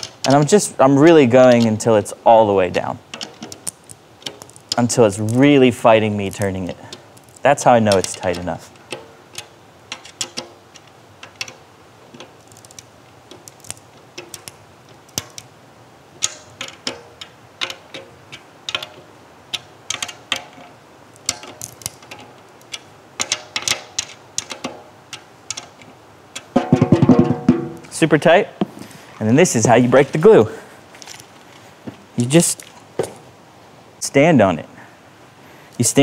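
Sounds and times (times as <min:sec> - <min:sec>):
drum key cranking tension rods: 0:02.7 - 0:15.4, 0:16.2 - 0:28.1
drumhead glue cracking: 0:02.7 - 0:15.6, 0:16.2 - 0:28.0.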